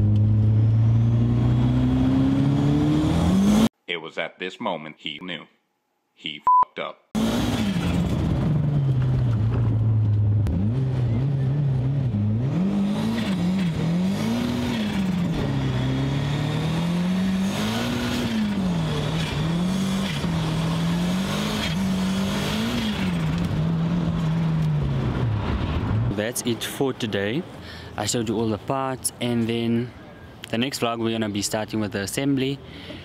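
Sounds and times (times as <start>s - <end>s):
car engine revving: 0.0s - 3.7s, 7.2s - 26.2s.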